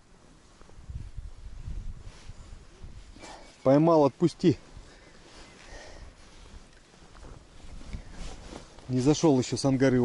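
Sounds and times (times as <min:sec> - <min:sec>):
wind buffeting microphone: 0:00.6 - 0:03.4, 0:04.6 - 0:10.0.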